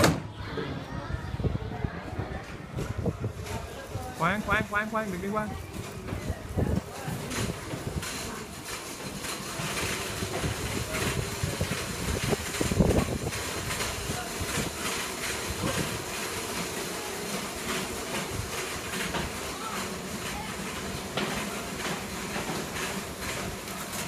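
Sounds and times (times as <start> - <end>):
water rushing in a tank: 7.4 - 24.0
wave maker motor running: 7.4 - 24.0.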